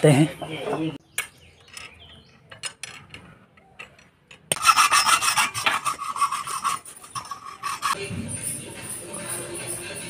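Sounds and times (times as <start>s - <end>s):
metal rasping of pipe threading: 3.8s - 8.0s.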